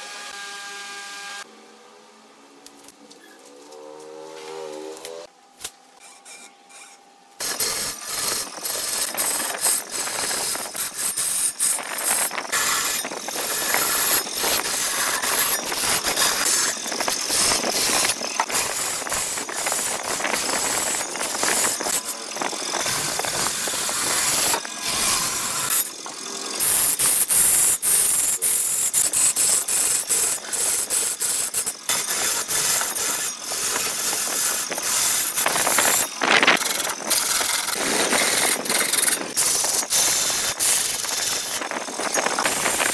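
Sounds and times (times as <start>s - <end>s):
lathe tool scraping wood: 6.0s - 42.9s.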